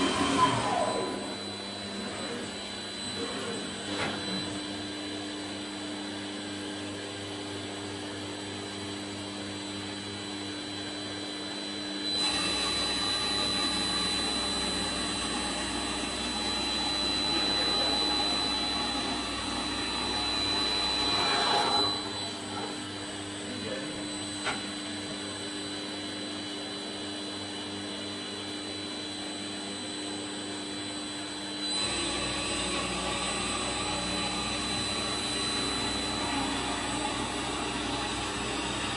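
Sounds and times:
machine whirring and whining: 0.0s - 38.9s
tool milling wooden beam: 12.2s - 22.2s, 31.7s - 38.9s.

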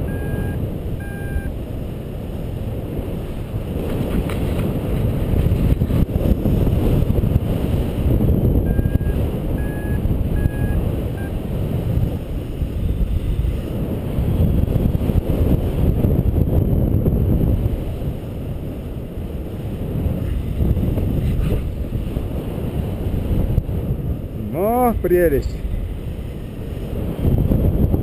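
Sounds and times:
variometer short beeps: 0.0s - 1.5s, 8.6s - 11.4s
wind rushing over microphone: 0.0s - 28.0s.

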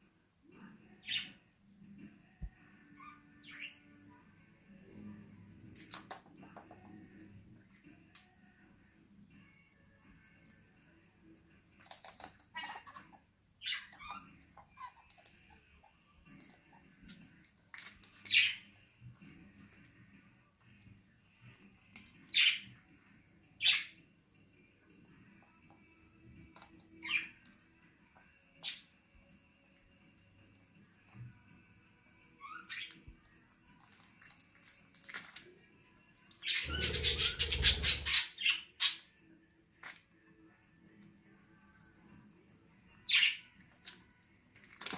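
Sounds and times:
parakeets chirping: 12.6s - 15.1s, 36.4s - 39.0s
loud harsh bird call: 36.6s - 38.6s.

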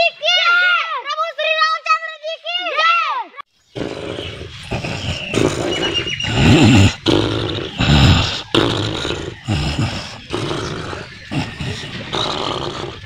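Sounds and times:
rough growling and roaring: 3.8s - 13.0s.

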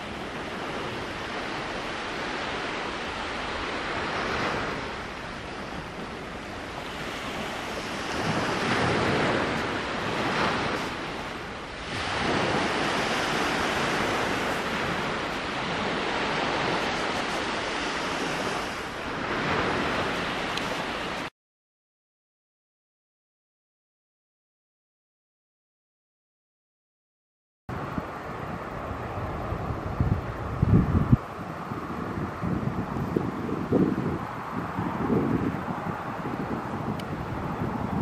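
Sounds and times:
waves washing onto pebble shore: 0.0s - 21.3s
wind on microphone: 0.0s - 21.3s, 27.7s - 38.0s.

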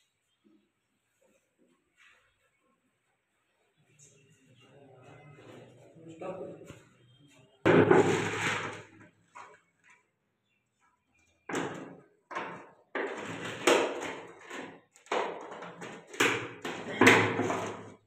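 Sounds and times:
plastic bottle knocking and rattling: 7.7s - 9.0s, 11.5s - 18.0s.

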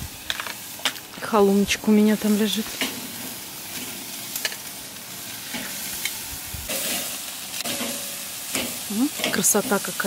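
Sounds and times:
meat sizzling on a grill: 0.0s - 10.0s.

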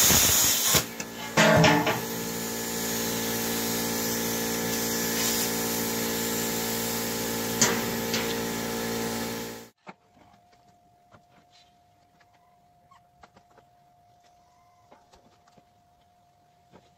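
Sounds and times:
machine humming: 0.9s - 9.7s
steel plate clanging: 1.1s - 2.3s, 7.6s - 8.6s.

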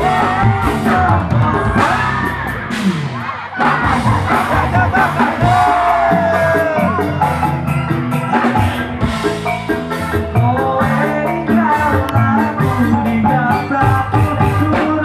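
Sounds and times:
man singing: 0.0s - 2.8s, 3.7s - 7.5s, 10.1s - 15.0s
live band music: 0.0s - 15.0s.

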